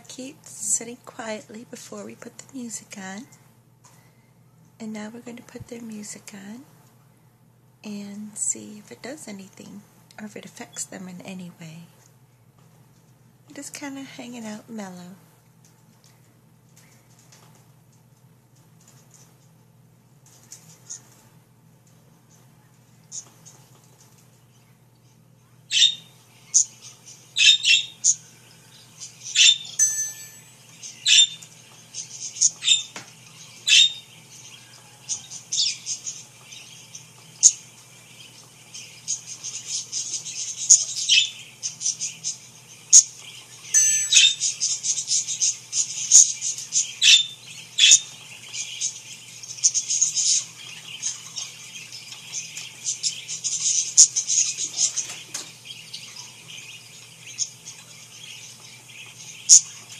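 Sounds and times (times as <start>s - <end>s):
steady low hum: 0.0s - 59.9s
parakeets chirping: 25.7s - 59.9s.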